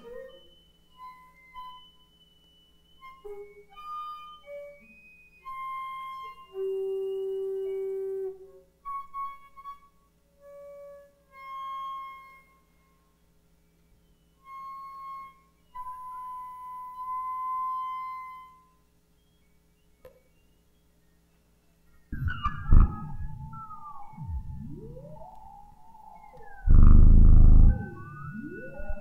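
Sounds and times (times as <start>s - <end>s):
held feedback tones: 22.1s - 29.0s.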